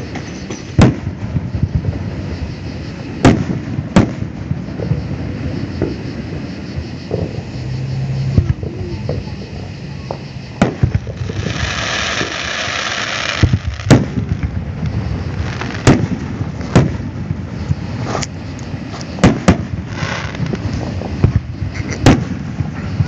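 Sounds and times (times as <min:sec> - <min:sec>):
firework hiss: 0:00.0 - 0:23.0
firework shells bursting: 0:10.1 - 0:23.0.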